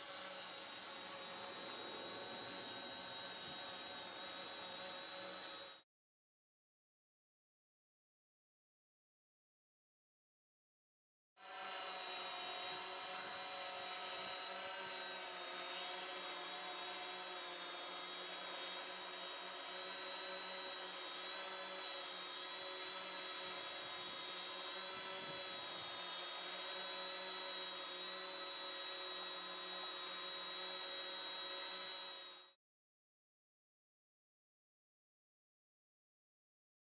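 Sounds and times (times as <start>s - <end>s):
drone propellers humming: 0.0s - 5.5s.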